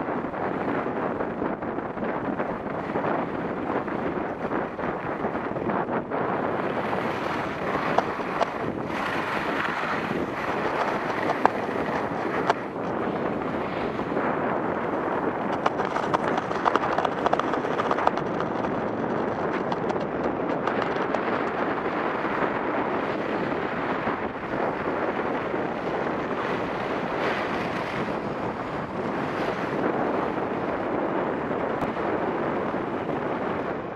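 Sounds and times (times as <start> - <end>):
wind over microphone: 0.0 - 33.9.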